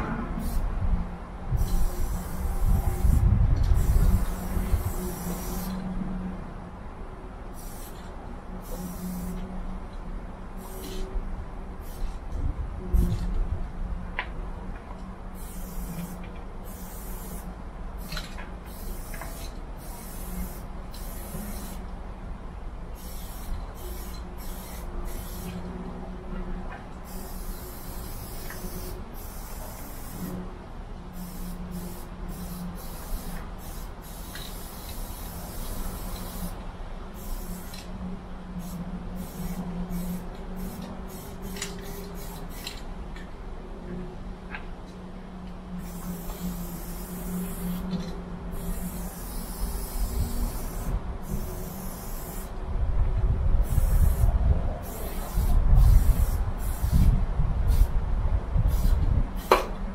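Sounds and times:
spray paint can hissing: 0.4s - 0.7s, 1.6s - 5.8s, 7.5s - 9.4s, 10.6s - 11.1s, 11.8s - 12.2s, 15.4s - 21.8s, 23.0s - 25.6s, 27.0s - 30.4s, 31.1s - 37.9s, 38.6s - 42.8s, 45.8s - 52.6s, 53.6s - 57.9s, 58.7s - 59.8s.

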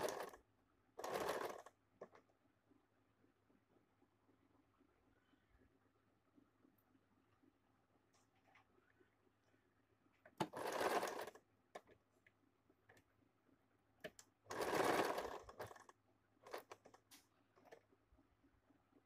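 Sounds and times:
sewing machine stitching: 0.0s - 0.4s, 1.0s - 2.2s, 10.4s - 11.9s, 14.1s - 17.8s.

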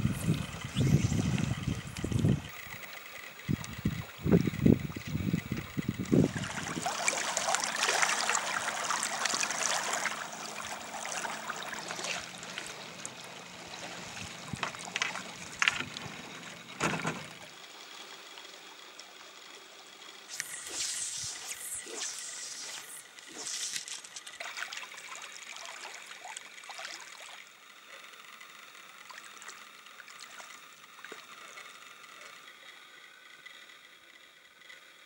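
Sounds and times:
water lapping against kayak hull: 0.0s - 16.8s
water splashes: 0.0s - 17.0s, 20.3s - 27.6s, 29.0s - 31.8s
small waves hissing: 0.0s - 34.1s.

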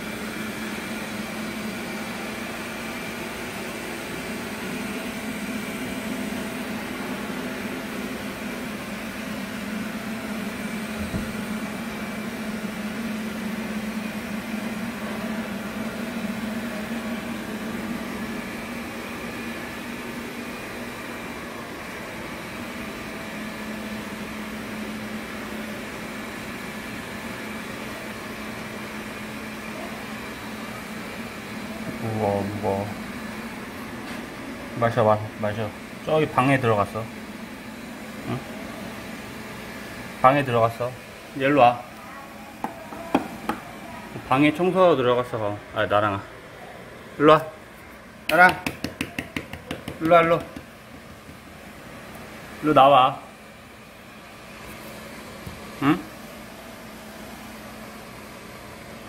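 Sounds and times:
robot vacuum cleaner humming: 0.0s - 46.2s.

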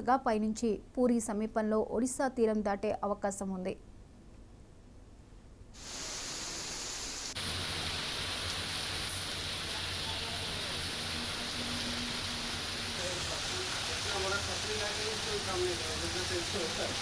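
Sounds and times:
heavy rain hissing: 5.8s - 17.0s
rain on city street: 5.8s - 17.0s.

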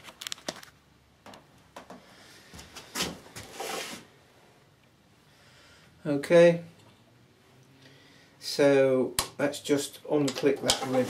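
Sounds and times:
short rustle or scrape: 2.8s - 4.1s, 10.8s - 11.0s.

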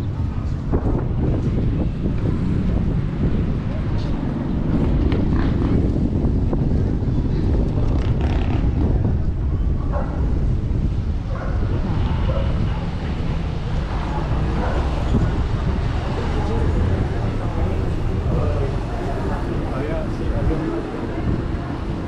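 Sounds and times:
wind buffeting microphone: 0.0s - 22.0s
faint voices: 11.6s - 22.0s.

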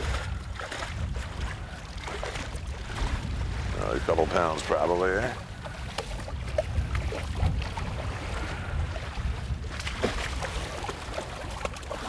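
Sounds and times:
wind on microphone: 0.0s - 12.0s.

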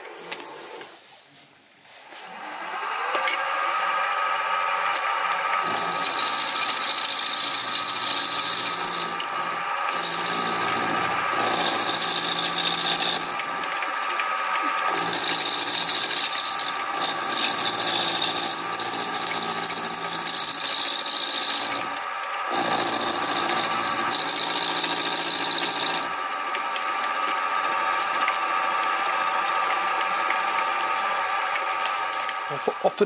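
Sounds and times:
shrill milling cutting noise: 1.7s - 33.0s
spindle motor hum: 1.7s - 33.0s.

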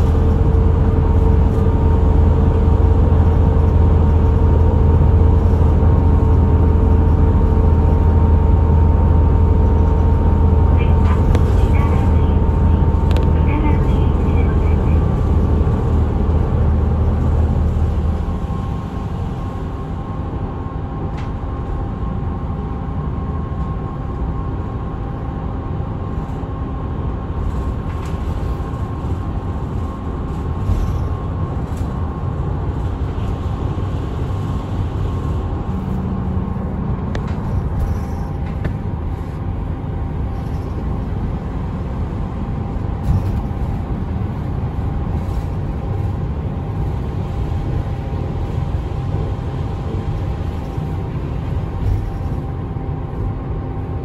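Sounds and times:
bus engine drone: 0.0s - 54.0s.

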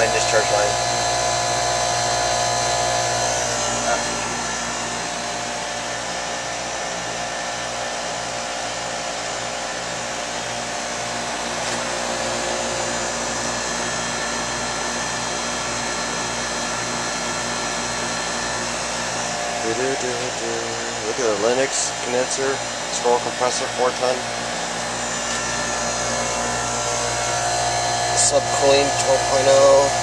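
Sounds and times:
compressor hum: 0.0s - 30.0s
condenser fan blowing: 0.0s - 30.0s.

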